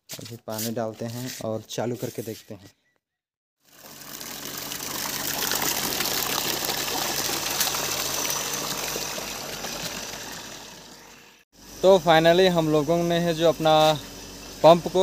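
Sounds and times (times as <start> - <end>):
water gushing and splashing: 3.6 - 11.3
electric water pump running: 3.6 - 15.0.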